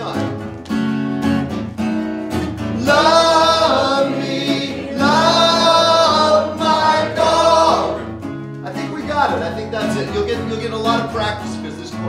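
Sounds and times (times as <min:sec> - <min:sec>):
strummed acoustic guitar: 0:00.0 - 0:12.0
voices singing with vibrato: 0:02.8 - 0:08.2.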